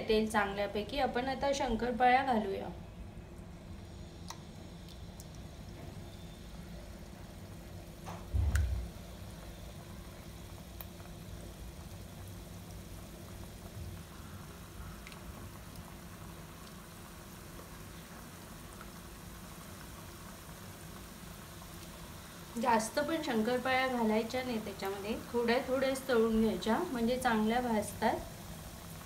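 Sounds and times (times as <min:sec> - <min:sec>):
dough sizzling in hot oil: 0:03.4 - 0:29.0
dull low thump: 0:08.2 - 0:08.9.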